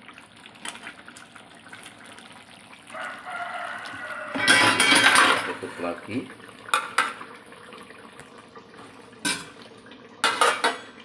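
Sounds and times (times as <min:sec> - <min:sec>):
metal utensils knocking on pot: 0:04.3 - 0:05.6, 0:10.2 - 0:11.0.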